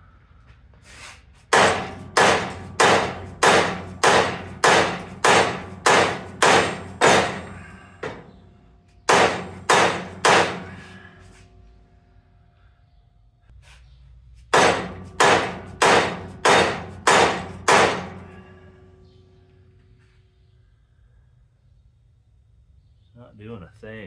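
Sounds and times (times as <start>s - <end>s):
hammer striking metal: 1.5s - 11.2s, 14.5s - 19.3s.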